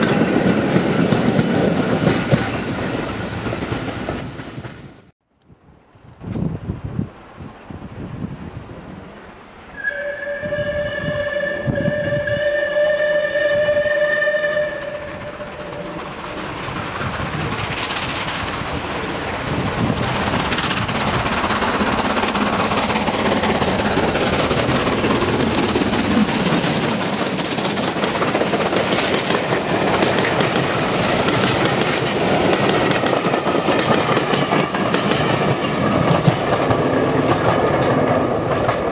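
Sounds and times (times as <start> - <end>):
train wheels clicking over rail joints: 0.0 - 5.1, 14.0 - 38.9
steam locomotive exhaust: 9.7 - 38.6.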